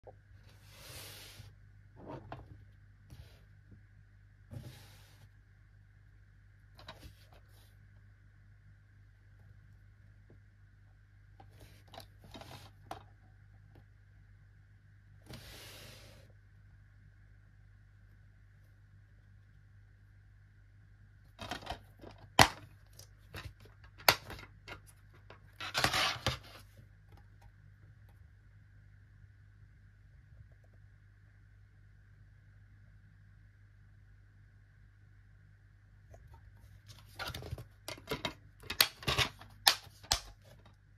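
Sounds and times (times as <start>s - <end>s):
plastic case handling noise: 36.8s - 40.8s.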